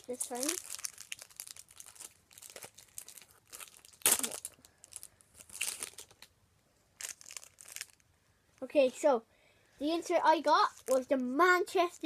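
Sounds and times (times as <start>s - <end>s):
foil wrapper tearing and crinkling: 0.0s - 6.3s, 7.0s - 8.0s, 10.7s - 11.2s.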